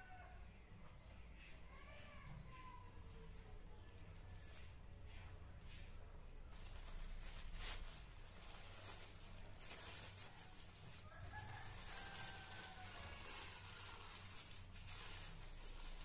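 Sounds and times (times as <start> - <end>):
plastic bag crinkling: 6.3 - 16.0.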